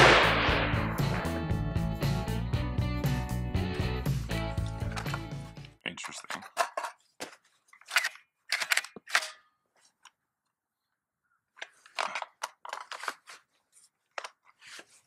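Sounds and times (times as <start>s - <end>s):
rifle metallic clicks and clatter: 6.0s - 7.0s, 7.7s - 9.5s.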